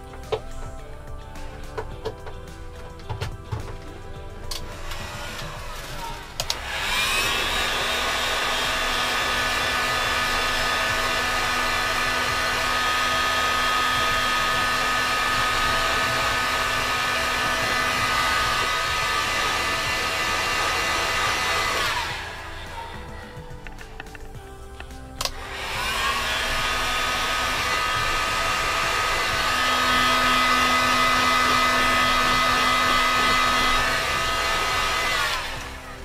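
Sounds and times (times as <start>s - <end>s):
heat gun fan whine: 0.0s - 36.0s.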